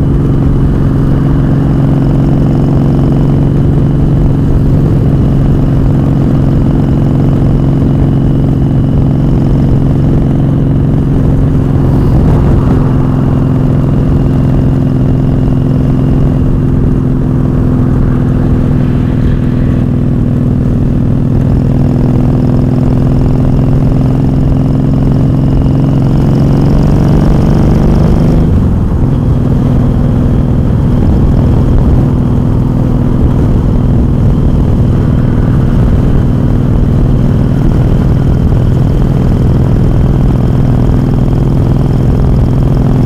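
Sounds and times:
motorcycle engine cruising: 0.0 - 43.0
wind rushing: 9.0 - 22.4.

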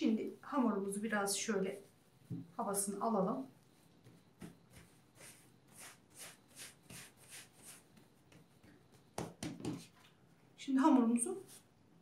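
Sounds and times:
hands rubbing dough: 3.6 - 10.0
hand patting dough: 3.9 - 5.0, 6.8 - 9.9.

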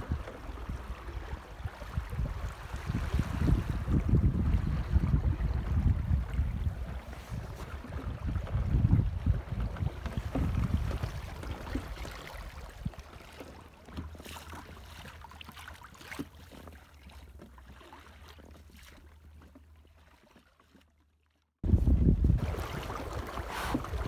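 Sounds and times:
wind buffeting microphone: 0.0 - 13.0, 21.6 - 24.0
water splashing past boat: 0.0 - 24.0.

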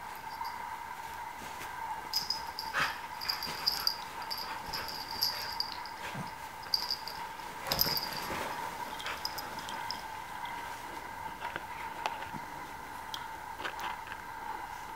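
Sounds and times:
faint high hum: 0.0 - 14.9
high jingles: 0.1 - 0.7, 2.1 - 10.6
animals scuffling: 1.0 - 12.6.

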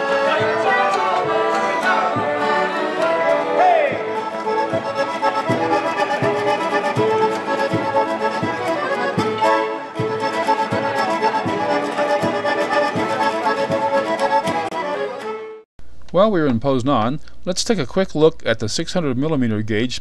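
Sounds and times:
accordion music with steady beat: 0.0 - 15.6.

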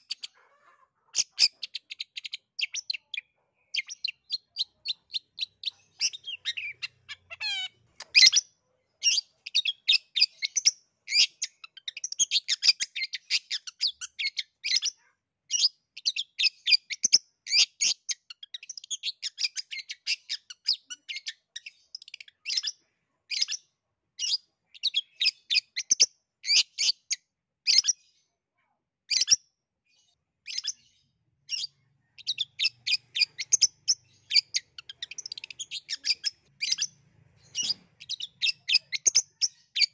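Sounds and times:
bird chattering song: 0.0 - 28.1, 29.1 - 39.9.

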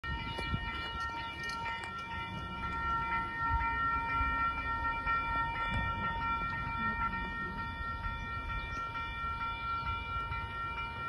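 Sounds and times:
level crossing alarm ringing: 0.0 - 11.0.

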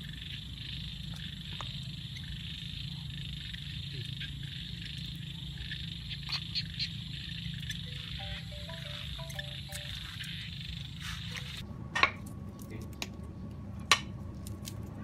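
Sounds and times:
frogs croaking: 0.0 - 11.6
insects chirping: 0.0 - 11.6.

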